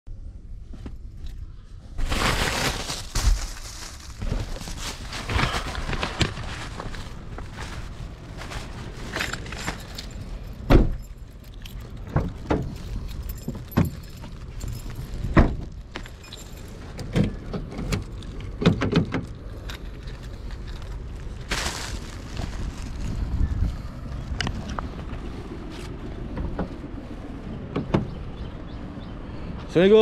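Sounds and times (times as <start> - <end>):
low steady rumble: 0.1 - 29.9
light jingling: 9.0 - 17.2
knocks and thumps of handling: 9.1 - 19.4.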